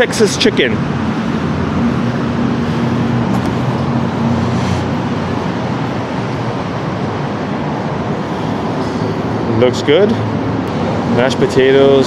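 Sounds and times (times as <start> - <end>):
city street traffic: 0.0 - 12.0
low engine hum: 0.2 - 12.0.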